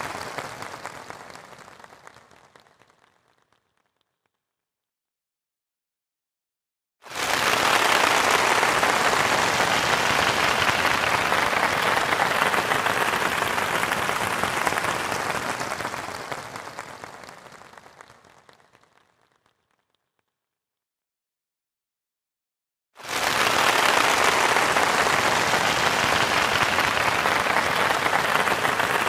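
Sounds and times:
crowd applauding: 0.0s - 3.6s, 7.1s - 19.4s, 23.0s - 29.0s.

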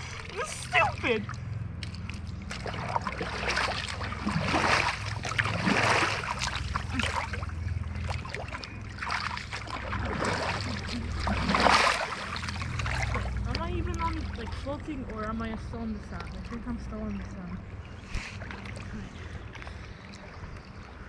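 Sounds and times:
paddle splashing water: 0.0s - 21.0s
steady low rumble: 0.0s - 21.0s.

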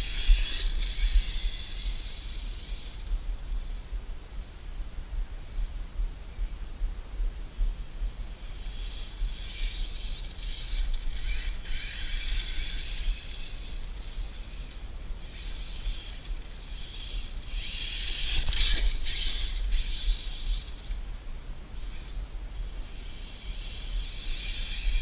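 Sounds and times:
toy truck electric motor whining: 0.0s - 3.7s, 8.5s - 21.1s, 21.8s - 25.0s.

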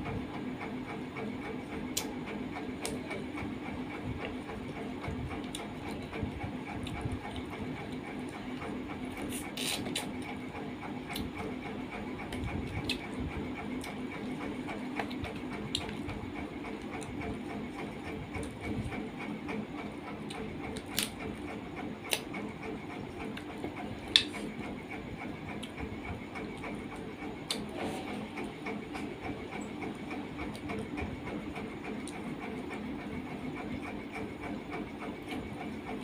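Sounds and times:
steady mechanical hum: 0.0s - 36.0s
chewing and finger clicks: 12.3s - 13.1s, 15.0s - 16.1s, 27.5s - 27.7s.

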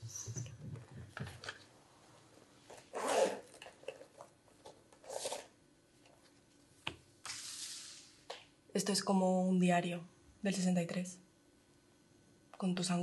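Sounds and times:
zip rasping: 2.9s - 3.6s.

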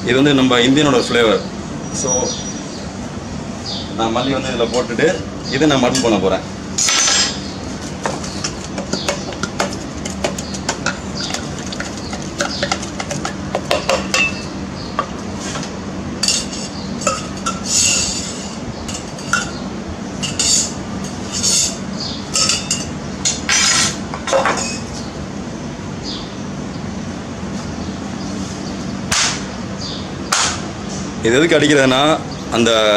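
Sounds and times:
wooden muddler pounding leaves: 7.9s - 14.1s.

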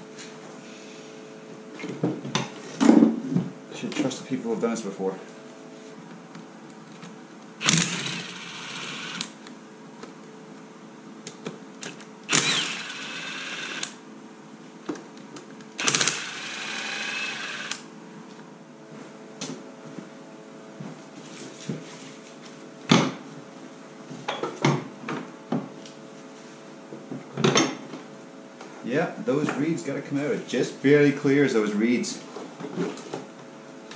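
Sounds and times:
cordless power tool driving fasteners: 7.6s - 9.4s, 11.8s - 14.0s, 15.8s - 17.8s.

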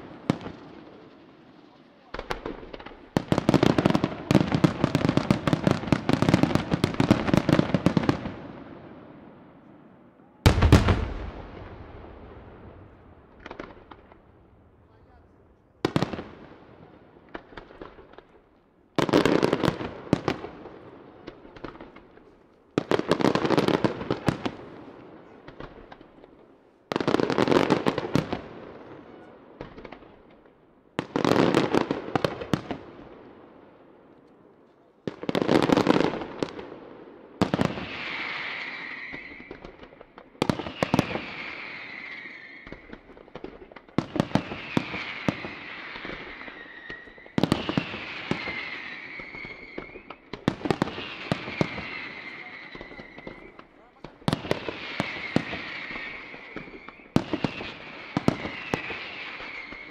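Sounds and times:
firework crackle: 0.0s - 8.5s, 37.4s - 59.9s
falling firework whistles: 37.6s - 39.8s, 40.4s - 43.0s, 44.0s - 53.6s, 54.6s - 59.9s.

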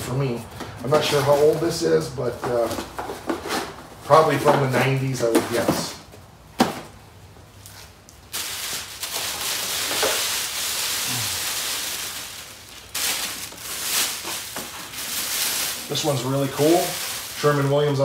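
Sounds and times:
plastic bag crinkling: 7.7s - 18.0s.

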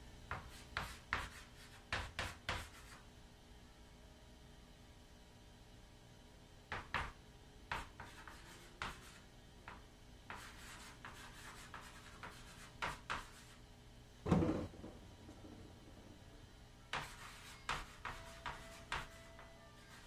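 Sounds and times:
chalk scratching on chalkboard: 0.3s - 3.0s, 6.7s - 13.6s, 16.9s - 20.0s
dull thump: 14.2s - 16.0s.

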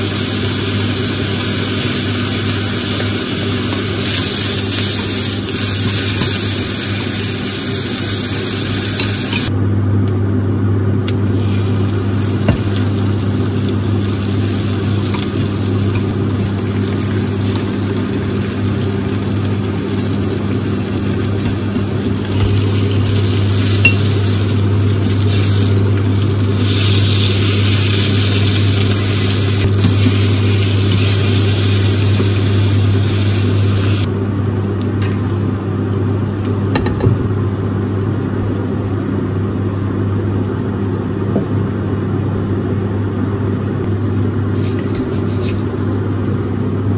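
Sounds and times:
food sizzling in frying pan: 0.0s - 9.5s, 11.2s - 34.1s, 43.9s - 46.7s
steady low hum: 0.0s - 46.9s.

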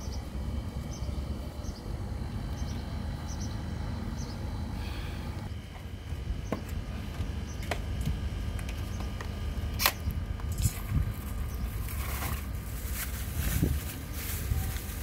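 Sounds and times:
steady low rumble: 0.0s - 15.0s
plastic wrapping rustling: 11.0s - 15.0s.

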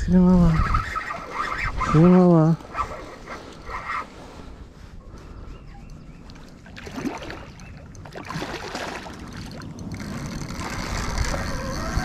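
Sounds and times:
water sloshing from wading: 6.0s - 12.0s.

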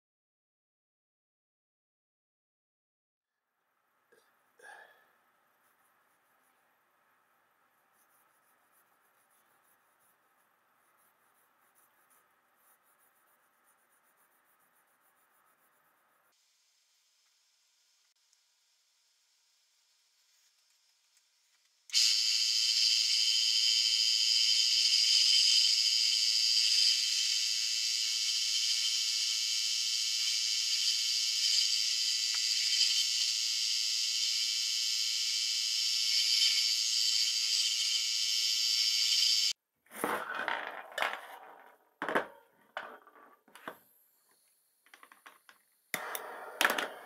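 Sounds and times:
wood lathe whirring: 21.9s - 39.5s.

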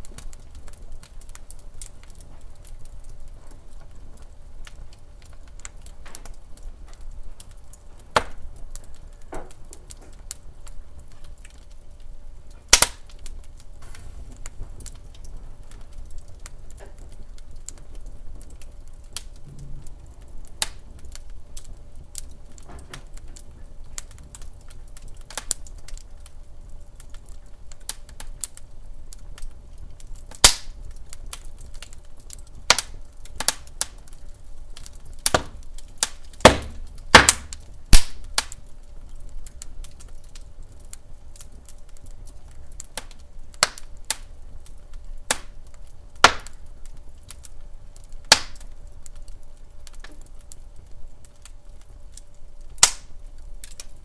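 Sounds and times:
logs crackling and popping: 0.0s - 54.0s
low hiss of flame: 0.0s - 54.0s.

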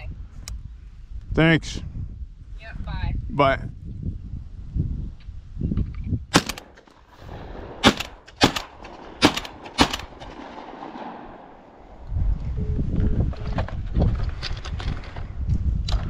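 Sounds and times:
shotgun shots: 6.3s - 11.8s.

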